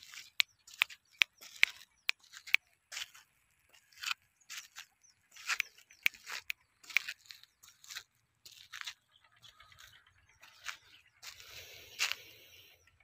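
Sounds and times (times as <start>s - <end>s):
footsteps crunching on dirt: 0.0s - 12.7s.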